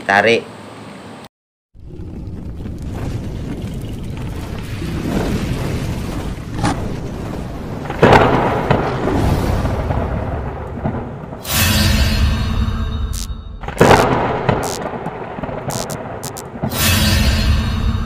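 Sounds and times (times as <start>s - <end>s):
rumbling thunder: 1.8s - 11.4s, 13.8s - 16.7s
thunder crack: 1.8s - 11.5s, 13.7s - 16.8s
steady rain: 2.6s - 11.4s.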